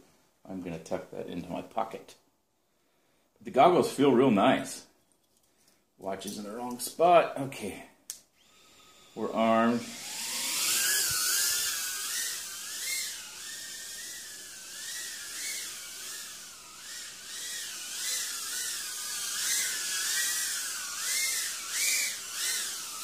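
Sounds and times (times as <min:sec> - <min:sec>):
quadcopter motors whining: 0:08.4 - 0:23.0.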